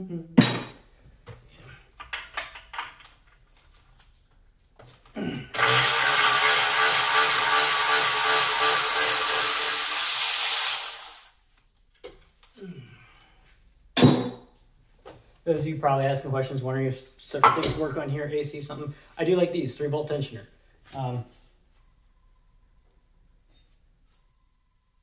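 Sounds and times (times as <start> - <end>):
handheld power tool running: 5.6 - 11.4.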